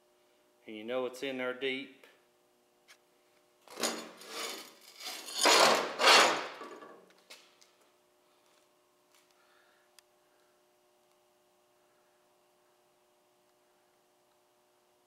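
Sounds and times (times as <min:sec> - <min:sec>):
rubbing scraping noise: 0:04.2 - 0:06.5.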